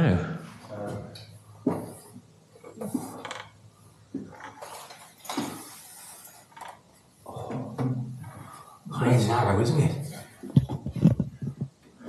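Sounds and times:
wood creaking: 2.6 - 8.6, 10.4 - 11.8.

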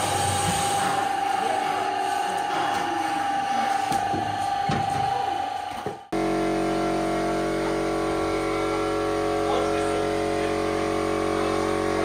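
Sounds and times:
electric motors whining: 0.0 - 12.0
steady motor hum: 6.0 - 12.0.

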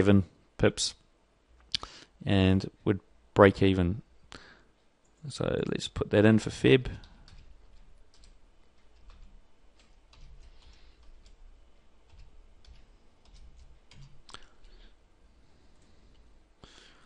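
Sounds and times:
keyboard keystrokes clicking: 12.1 - 14.4.

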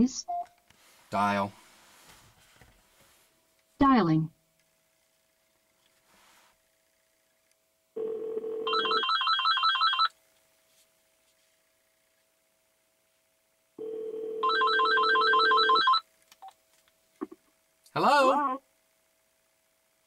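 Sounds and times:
low steady ringback tone: 8.0 - 10.1, 13.8 - 16.0
phone ringing with warbling trill: 8.0 - 10.1, 13.8 - 16.0.

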